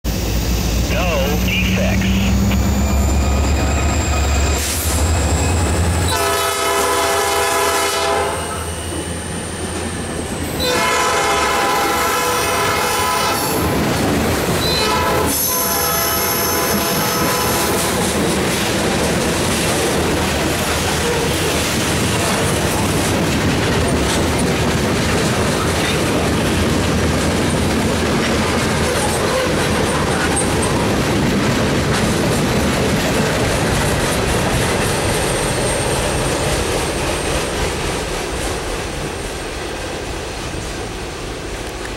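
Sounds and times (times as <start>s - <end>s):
diesel locomotive engines rumbling: 0.1s - 41.9s
high wheel squeal: 2.3s - 6.2s
train air horn blasts: 6.1s - 8.7s, 10.6s - 13.6s, 14.6s - 17.9s.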